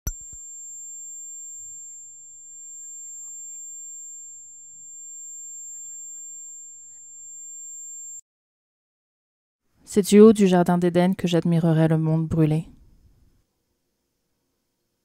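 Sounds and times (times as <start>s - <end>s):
high-pitched electronic sine tone: 0.1s - 8.2s.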